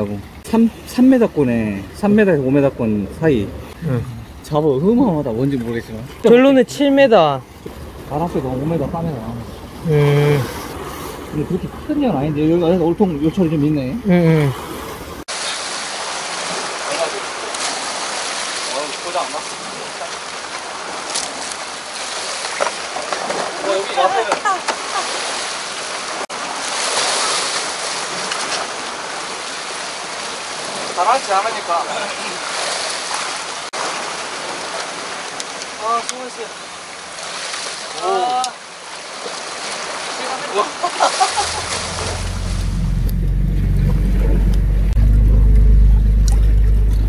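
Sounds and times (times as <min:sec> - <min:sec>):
surf washing against rocks: 0:13.6 - 0:44.6
low engine drone: 0:41.3 - 0:47.0.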